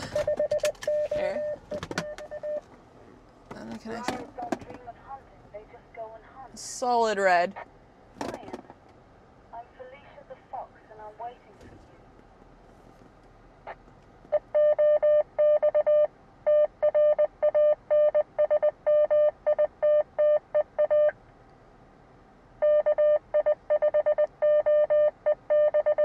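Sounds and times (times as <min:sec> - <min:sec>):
morse code beeps over radio speaker: 0:00.0 - 0:02.6, 0:14.4 - 0:21.1, 0:22.6 - 0:26.0.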